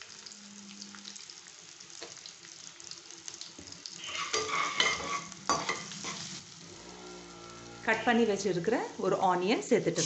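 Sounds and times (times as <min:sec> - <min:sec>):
oil sizzling: 0:00.0 - 0:10.0
metal spoon scraping a pan: 0:04.0 - 0:06.4.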